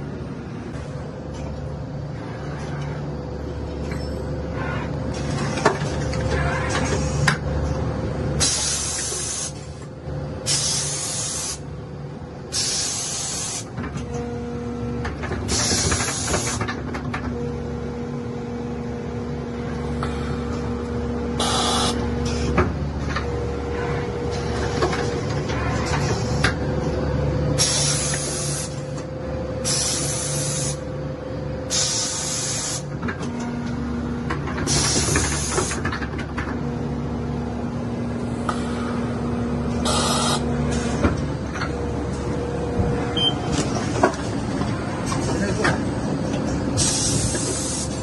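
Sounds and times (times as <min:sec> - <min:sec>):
machinery humming: 0:00.0 - 0:48.0
compressed air hisses: 0:08.4 - 0:09.7, 0:10.5 - 0:11.6, 0:12.5 - 0:13.7, 0:21.4 - 0:22.5, 0:27.6 - 0:28.8, 0:29.6 - 0:30.8, 0:31.7 - 0:32.8, 0:39.8 - 0:40.4, 0:46.8 - 0:48.0.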